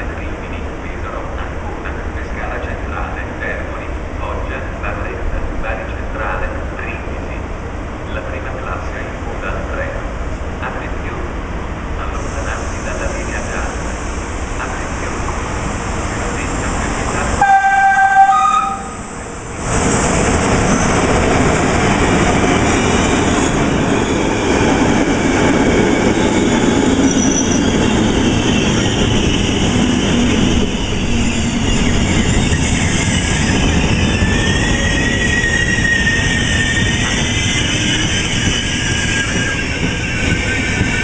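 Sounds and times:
train coaches rolling past: 0.0s - 41.0s
two-tone locomotive horn: 17.4s - 19.1s
high wheel squeal: 27.0s - 41.0s.

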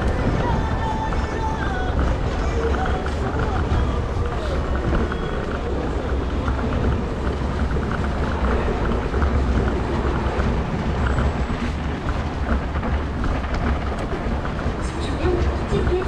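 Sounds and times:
scooter rolling over icy pavement: 0.0s - 16.0s
wind buffeting microphone: 0.0s - 16.0s.

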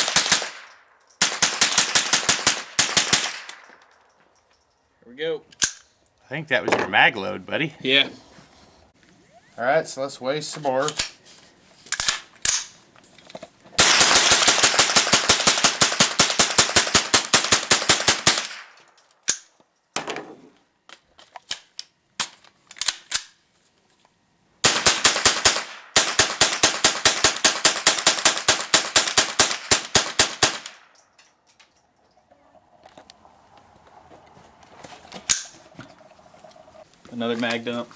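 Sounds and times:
rifle rapid gunshots: 0.0s - 0.6s, 1.2s - 3.5s, 13.8s - 18.7s, 24.6s - 30.8s.

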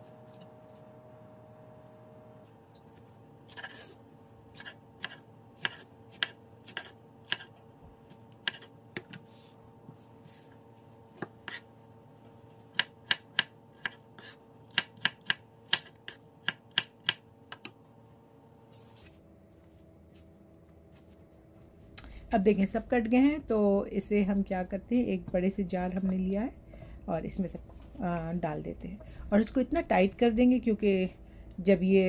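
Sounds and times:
faint steady hum: 0.0s - 32.0s
knife chopping on cutting board: 3.5s - 7.5s, 8.1s - 9.2s, 11.1s - 11.6s, 12.7s - 17.7s.

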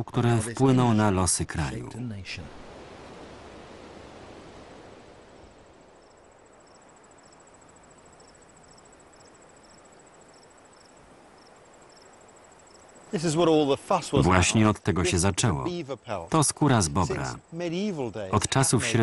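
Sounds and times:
insect chirp: 0.2s - 19.0s
soft hiss: 0.2s - 19.0s
insect trilling: 5.2s - 19.0s.

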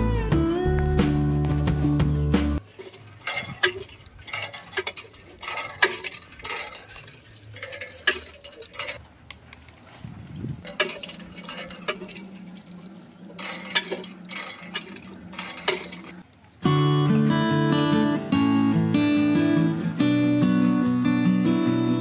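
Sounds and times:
water pouring into trough: 2.6s - 9.0s, 10.6s - 16.2s
electric water pump humming: 2.6s - 9.2s, 10.6s - 16.3s
hand pump handle clicking: 10.7s - 12.7s, 13.3s - 16.2s.

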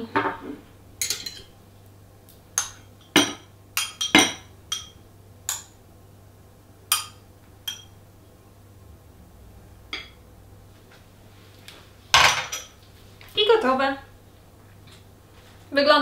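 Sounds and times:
utensil clinking on plate: 1.0s - 1.5s.

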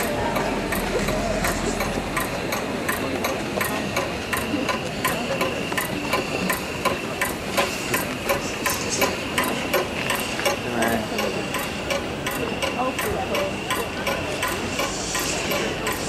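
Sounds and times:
sustained high tone: 0.0s - 2.9s
percussion clicking beat: 0.0s - 16.0s.

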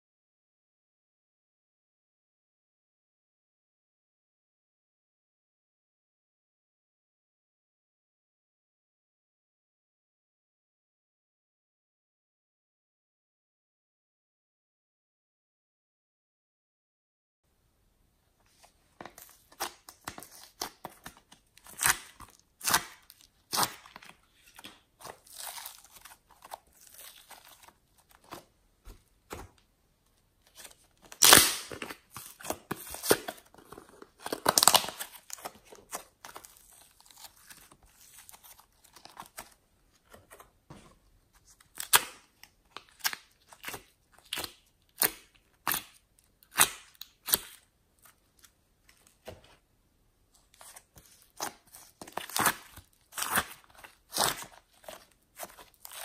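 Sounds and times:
soft clay tearing: 18.6s - 49.6s, 50.4s - 56.0s.

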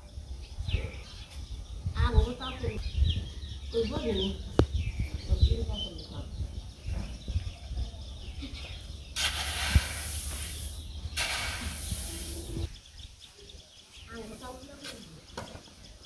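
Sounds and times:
hissing rush of sliding grain: 9.2s - 12.7s
rake pushing grain on tarpaulin: 9.2s - 12.7s.

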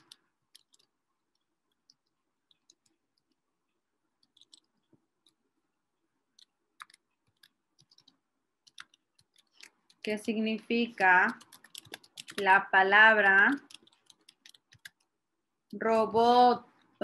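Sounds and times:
keyboard keys clicking: 0.0s - 0.9s, 4.2s - 4.7s, 6.4s - 10.2s, 11.3s - 12.6s, 13.5s - 15.1s.

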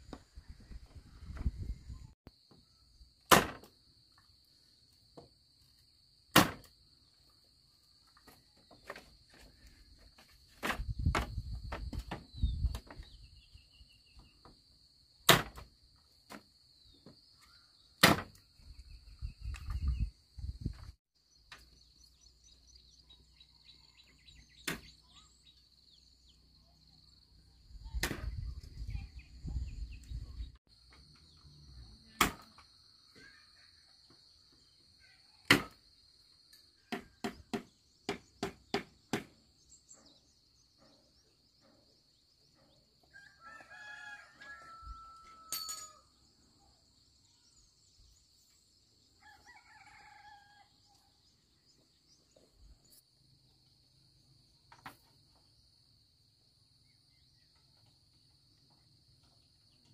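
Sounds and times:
rooster crowing: 43.1s - 46.1s, 49.2s - 50.8s.

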